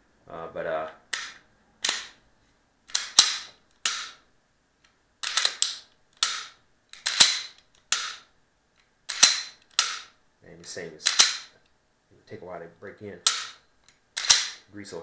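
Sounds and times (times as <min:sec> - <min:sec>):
pistol slide clacking and rasping: 0:01.1 - 0:02.2, 0:02.9 - 0:04.2, 0:05.2 - 0:10.2, 0:11.0 - 0:11.6, 0:13.3 - 0:14.7.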